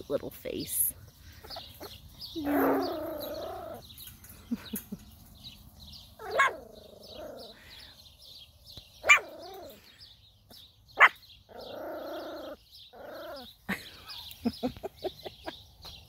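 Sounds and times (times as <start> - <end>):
small birds chirping: 0.0 - 16.0
puppy yapping: 6.2 - 7.4, 9.0 - 9.8, 11.0 - 13.5.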